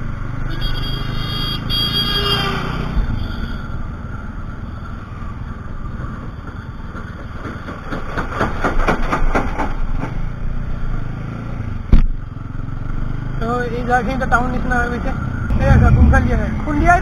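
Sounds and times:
wind rumble on microphone: 15.5s - 17.0s.

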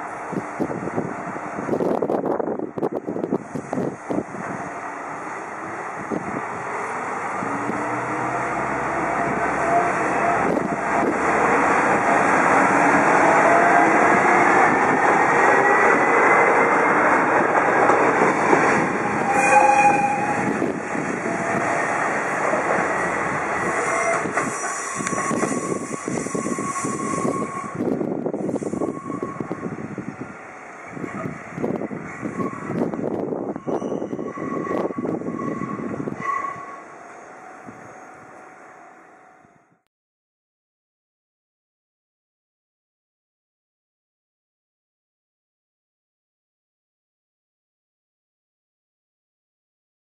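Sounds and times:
diesel railcar engine: 0.0s - 39.7s
wheels rumbling on rails: 0.0s - 39.7s.

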